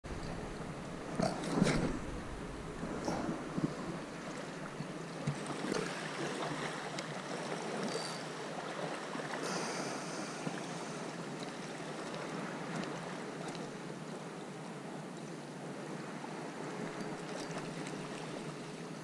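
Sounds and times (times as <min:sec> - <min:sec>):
waves lapping against rocks: 0:00.1 - 0:13.8.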